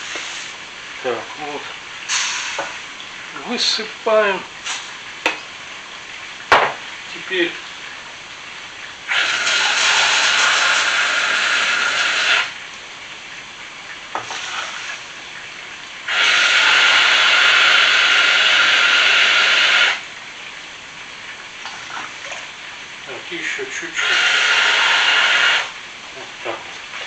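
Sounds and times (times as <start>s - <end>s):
tap filling mug with water: 2.6s - 2.8s, 6.4s - 6.9s, 14.1s - 14.5s.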